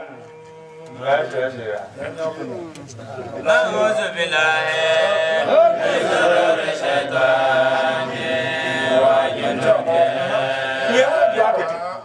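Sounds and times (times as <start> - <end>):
man chanting: 3.4 - 6.1, 8.0 - 12.0.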